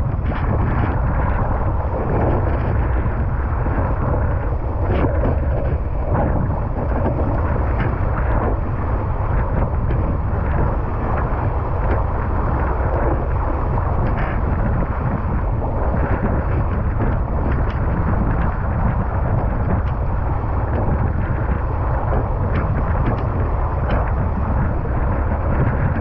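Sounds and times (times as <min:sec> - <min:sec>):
wind buffeting microphone: 0:00.0 - 0:26.0.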